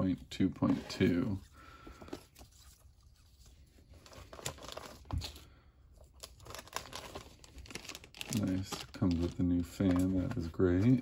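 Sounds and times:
paper and plastic bags rustling: 6.1s - 11.0s.

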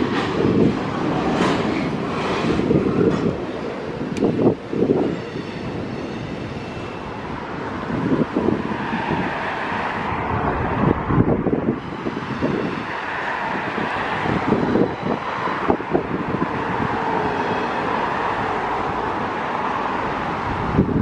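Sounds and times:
wind thumping on microphone: 0.0s - 6.6s, 7.3s - 19.4s, 20.2s - 21.0s
cars driving past: 6.8s - 21.0s.

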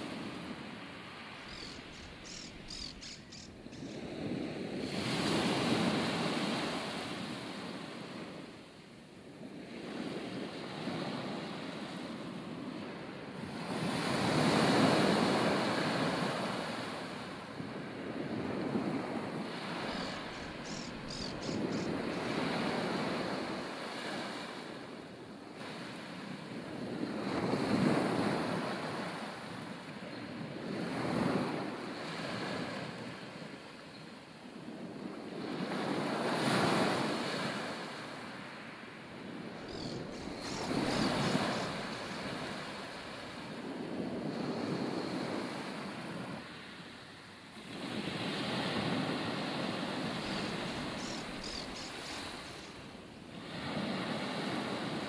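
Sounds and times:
high chirps: 1.5s - 4.0s
ocean waves breaking: 12.9s - 29.8s, 35.3s - 46.9s, 47.6s - 55.0s.

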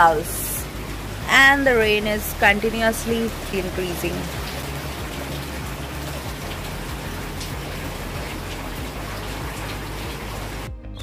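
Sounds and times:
steady rain hiss: 0.0s - 10.7s.

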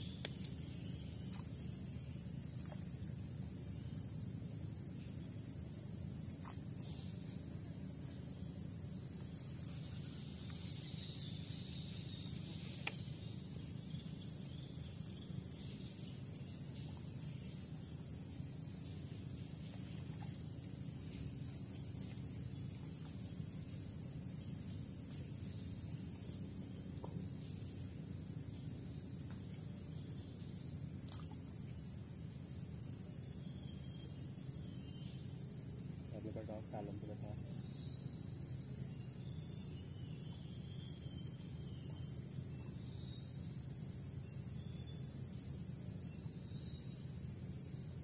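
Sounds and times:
high-pitched insect drone: 0.0s - 48.0s.

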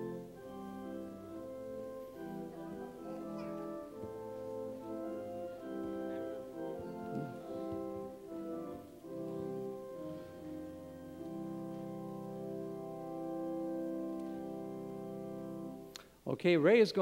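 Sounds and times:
church organ chords: 0.0s - 15.9s.

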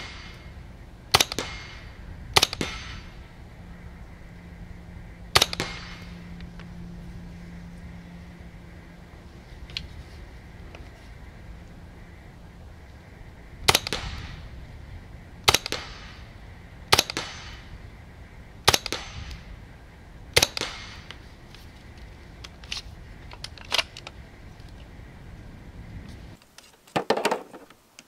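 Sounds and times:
suppressed rifle shots: 0.0s - 3.3s, 5.3s - 6.5s, 13.6s - 14.5s, 15.4s - 16.3s, 16.9s - 17.8s, 18.6s - 19.5s, 20.3s - 21.2s.

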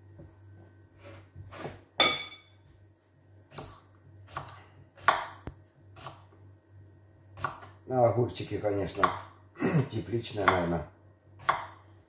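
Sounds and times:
knife chopping on wooden board: 3.5s - 6.2s, 7.4s - 7.8s, 8.9s - 9.3s, 10.4s - 10.8s, 11.4s - 11.8s.

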